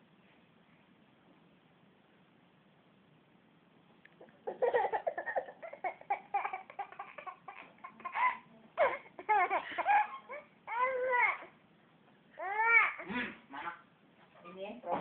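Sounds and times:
young child giggling: 0:04.2 - 0:10.4.

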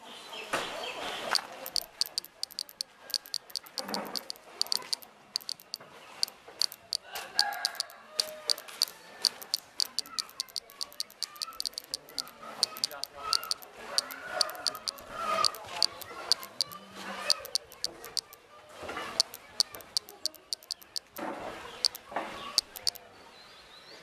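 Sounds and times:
cicada clicking: 0:01.4 - 0:05.8, 0:06.6 - 0:18.4, 0:19.2 - 0:21.2, 0:21.8 - 0:22.0, 0:22.6 - 0:23.0.

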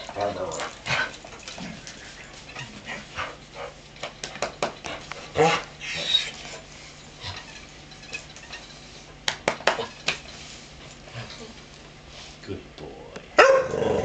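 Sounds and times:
dog claws clicking and tapping: 0:03.9 - 0:05.3, 0:07.3 - 0:10.3.

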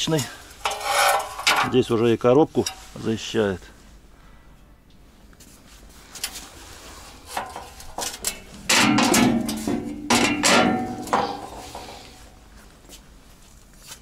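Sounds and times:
metal plate clanging and ringing: 0:07.4 - 0:12.2.

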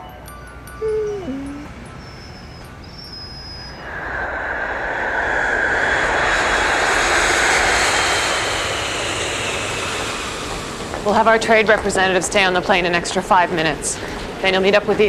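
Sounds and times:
jet engine roar: 0:03.8 - 0:15.0.

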